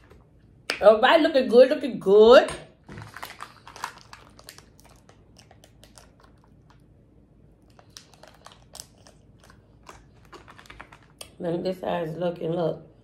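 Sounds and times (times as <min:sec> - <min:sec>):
plastic packet crinkling and tearing: 0:02.8 - 0:06.8, 0:07.6 - 0:11.3.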